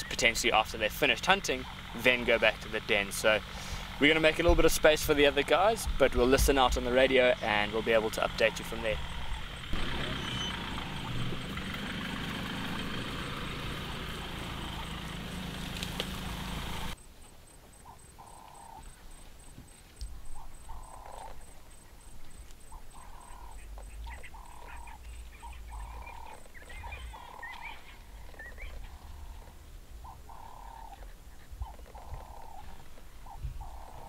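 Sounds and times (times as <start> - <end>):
higher chirps: 6.7 - 29.2
animal call short even notes: 9.0 - 11.4.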